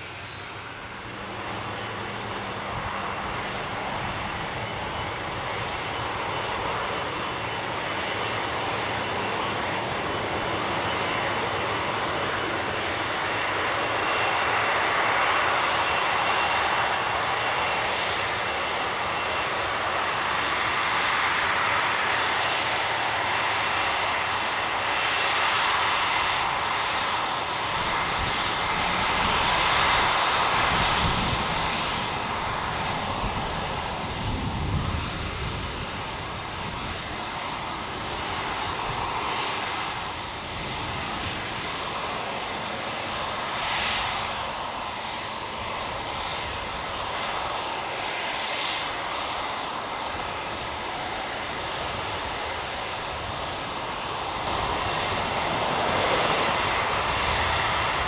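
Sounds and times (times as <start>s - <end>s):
jet engines roaring with whine: 0.0s - 58.0s.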